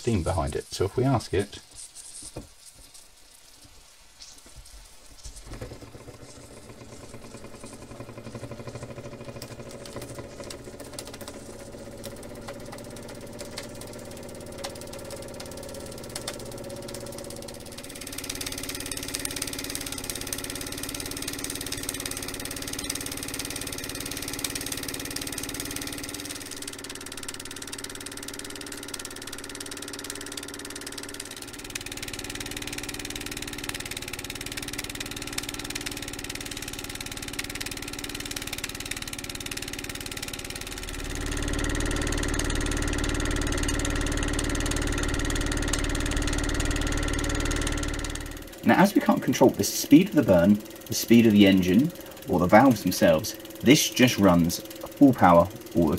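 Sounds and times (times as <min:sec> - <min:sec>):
steam puffs and hiss: 0:00.0 - 0:09.6
model steam engine chattering: 0:05.6 - 0:55.9
safety valve blowing off steam: 0:48.4 - 0:55.9.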